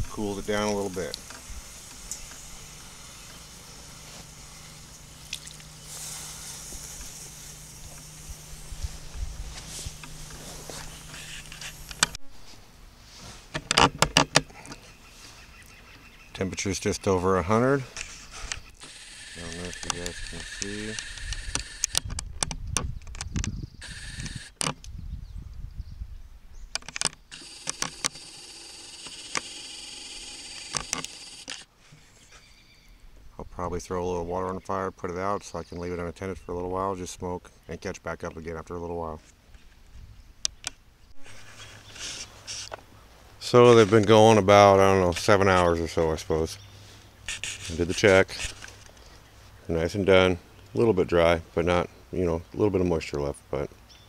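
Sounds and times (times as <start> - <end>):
water sizzling on hot blocks: 0.3 - 8.7
small pops: 0.6 - 8.3
camcorder zoom motor whining: 1.1 - 12.2, 18.5 - 22.1, 23.8 - 24.7, 27.3 - 31.7
sharp clicks: 9.9 - 12.2, 18.0 - 24.9, 26.7 - 31.7.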